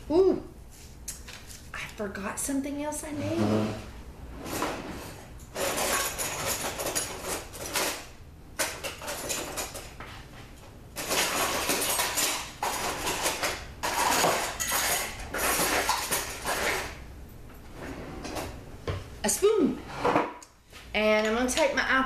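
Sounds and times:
cutlery clattering in drawer: 5.4 - 10.0, 11.0 - 17.0.

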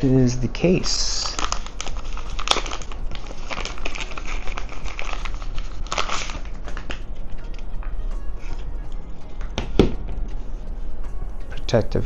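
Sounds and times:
wrapping crinkling and rustling: 0.6 - 8.6.

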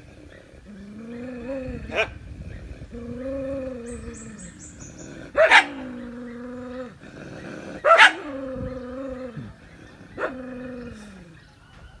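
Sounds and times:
dog barking: 5.4 - 5.9, 7.8 - 8.3.

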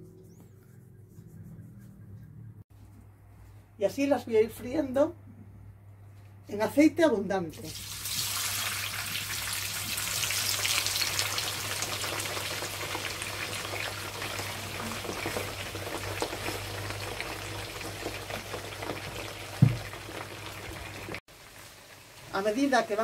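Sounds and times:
potatoes sizzling in hot oil: 7.7 - 23.0.

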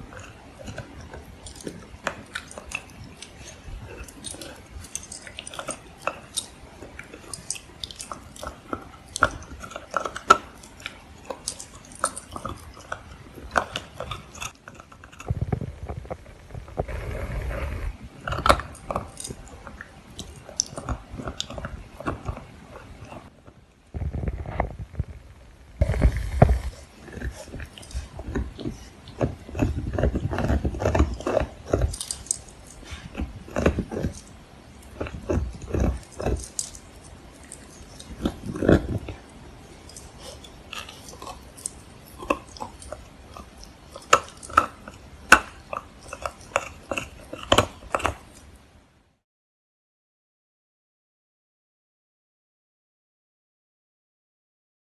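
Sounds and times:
teeth clicking and scraping on antler: 0.0 - 25.0, 25.8 - 48.6
muffled rubbing and thumping: 15.3 - 18.1, 23.9 - 26.9.

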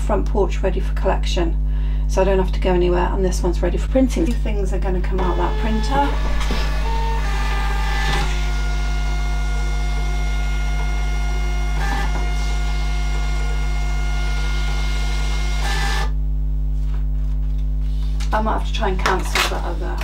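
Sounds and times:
label printer whirring: 5.2 - 16.2.

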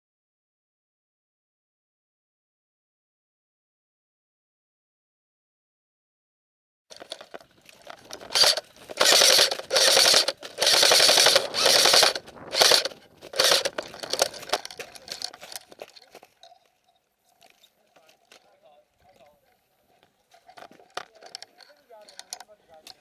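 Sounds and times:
airsoft rifle firing bursts: 8.2 - 15.3.

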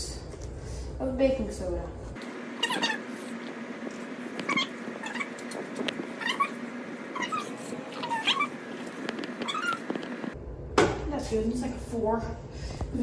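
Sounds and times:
cat meowing: 2.6 - 3.1, 4.4 - 5.6, 6.2 - 10.2.

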